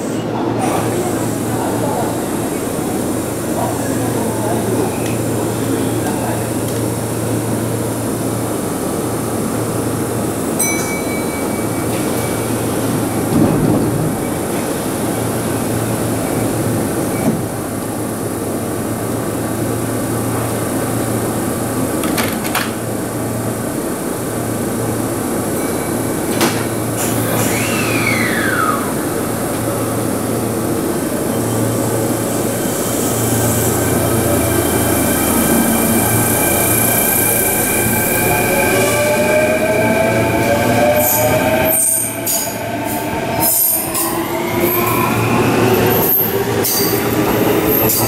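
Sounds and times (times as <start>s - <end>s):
electric train humming: 0.0s - 48.0s
train moving off with motor whine: 0.0s - 48.0s
train doors closing: 10.6s - 18.0s, 21.7s - 23.1s, 25.5s - 48.0s.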